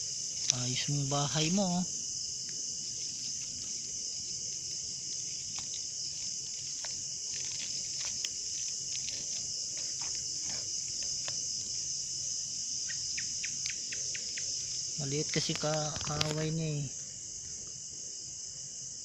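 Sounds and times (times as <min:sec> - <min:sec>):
night insects chirring: 0:00.0 - 0:19.0
light clicks and rustles: 0:02.5 - 0:11.7, 0:15.2 - 0:16.6.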